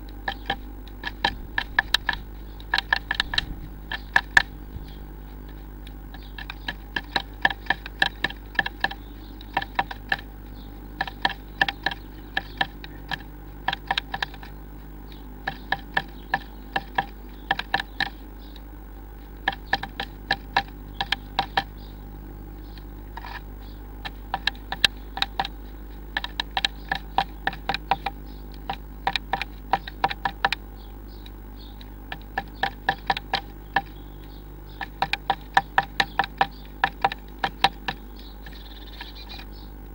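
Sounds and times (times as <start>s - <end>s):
low electrical hum: 0.0s - 39.9s
bird tapping on wood: 0.3s - 5.0s, 6.2s - 10.3s, 11.0s - 14.6s, 15.4s - 18.2s, 19.4s - 21.8s, 24.0s - 30.6s, 32.1s - 34.0s, 34.7s - 39.5s.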